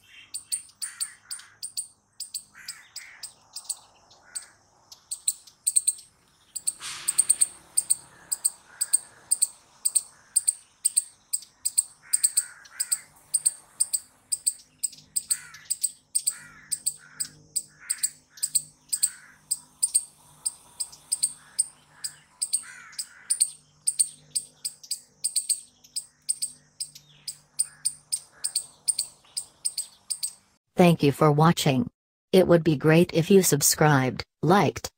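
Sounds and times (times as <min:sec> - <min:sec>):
soft bird calls: 0:00.0 - 0:30.6
squirrel chirping: 0:00.0 - 0:30.6.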